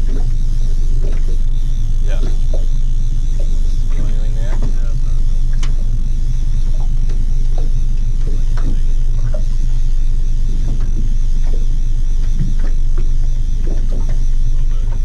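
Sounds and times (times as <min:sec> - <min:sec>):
outboard motor droning: 0:00.0 - 0:15.0.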